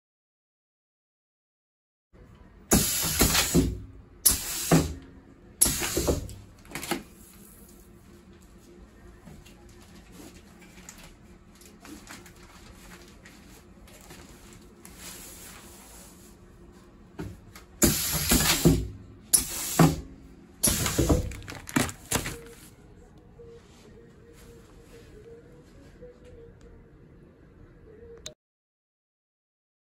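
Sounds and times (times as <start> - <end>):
compressed air hissing and clunking: 2.7 - 7.0, 17.2 - 22.4.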